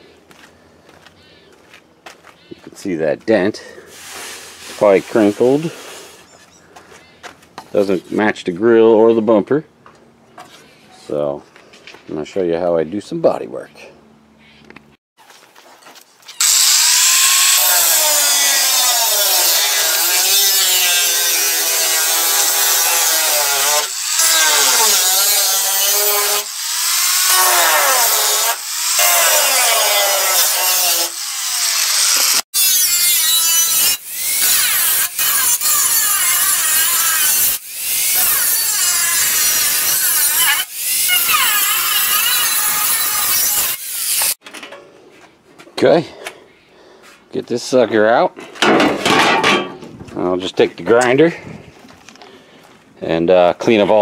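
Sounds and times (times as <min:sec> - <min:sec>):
angle grinder cutting sheet metal: 0:16.4 - 0:44.4.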